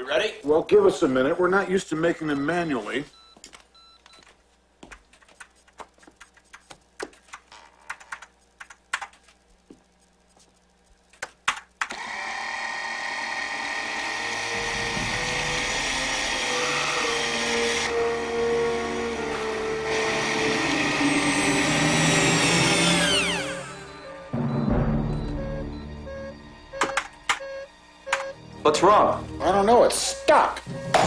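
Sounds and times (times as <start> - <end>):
machine whirring hum: 0.0 - 31.0.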